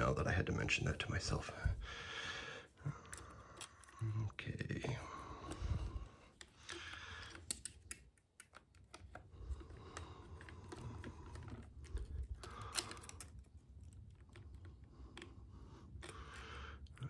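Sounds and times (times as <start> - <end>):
hex driver clicking on plastic: 6.3 - 13.4.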